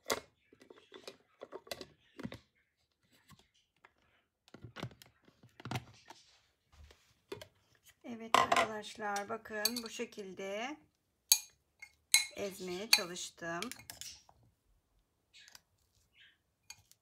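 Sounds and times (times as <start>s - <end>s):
plastic clicks and knocks: 0.0s - 2.5s, 3.3s - 6.2s.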